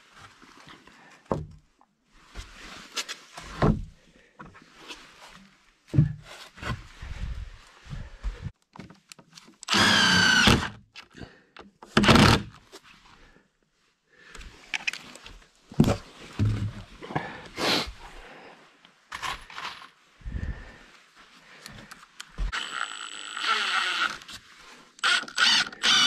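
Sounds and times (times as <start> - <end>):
knocks and thuds handling boards: 15.8 - 16.8.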